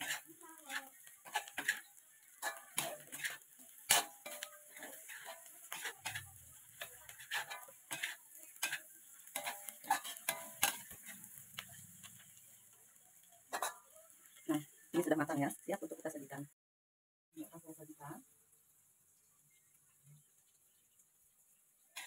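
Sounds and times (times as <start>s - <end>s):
metal spatula scraping a wok: 0.0s - 12.6s, 13.5s - 14.4s
faint sizzle: 0.0s - 16.6s, 17.4s - 22.0s.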